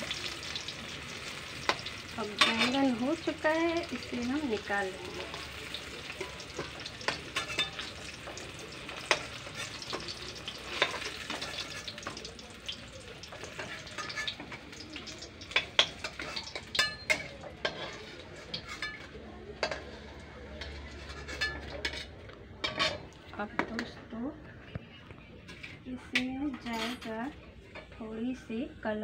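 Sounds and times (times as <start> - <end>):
eggplant sizzling in oil: 0.0 - 23.5
metal spatula scraping pan: 0.4 - 12.2, 13.3 - 14.8, 15.4 - 24.0.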